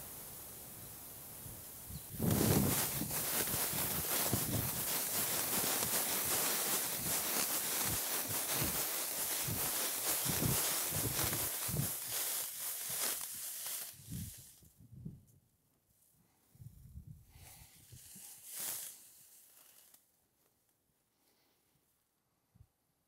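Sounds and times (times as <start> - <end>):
dry wheat stalks rustling: 0.0 - 14.7, 17.3 - 20.0
soft footfalls: 2.2 - 13.8.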